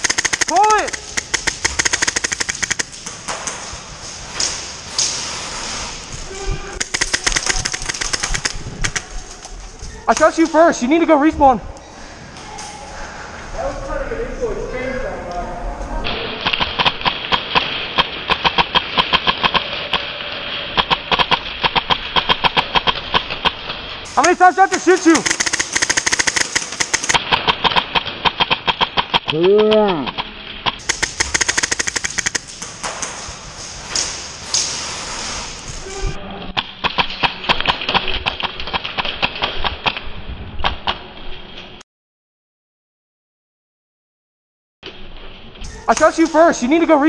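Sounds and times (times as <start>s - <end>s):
airsoft guns firing: 0.0s - 3.8s, 6.8s - 9.2s, 16.3s - 20.1s, 20.7s - 29.5s, 30.1s - 34.8s
steady hiss: 30.8s - 36.2s.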